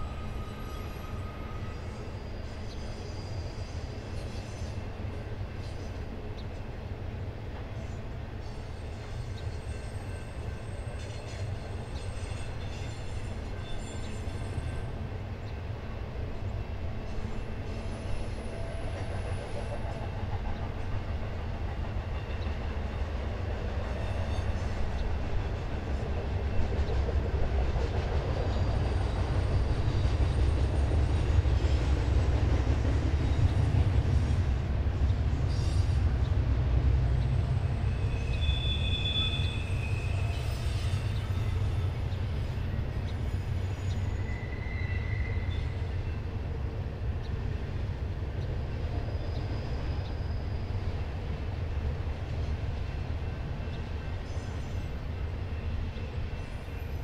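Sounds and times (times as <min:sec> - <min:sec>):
freight train rumbling by: 0:00.0 - 0:57.0.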